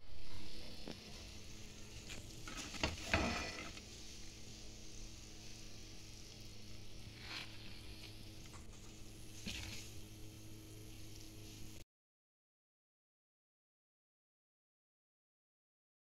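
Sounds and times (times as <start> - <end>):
chicken frying in oil: 0.9 - 11.8
wooden spatula scraping a pan: 1.9 - 4.2, 7.1 - 10.0.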